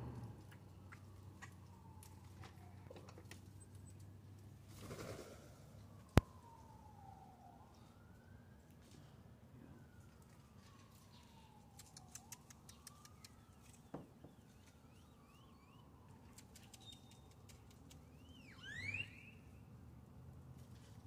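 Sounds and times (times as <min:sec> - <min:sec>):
faint siren wailing: 0:00.0 - 0:21.0
birds clicking and chirping: 0:11.9 - 0:14.9, 0:16.3 - 0:18.4
loud rising bird whistle: 0:14.2 - 0:15.9, 0:18.1 - 0:19.6.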